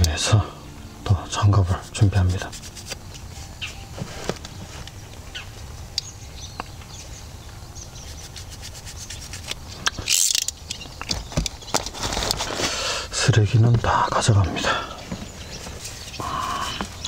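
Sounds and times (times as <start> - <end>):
steady low rumble: 0.0 - 12.5
gloves rubbing and rustling: 1.7 - 5.9, 6.8 - 13.1, 15.0 - 17.0.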